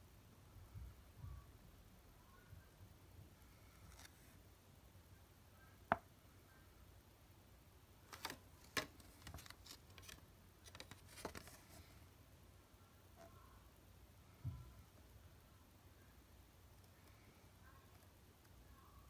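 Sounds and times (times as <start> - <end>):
paper crackling: 8.1 - 11.9.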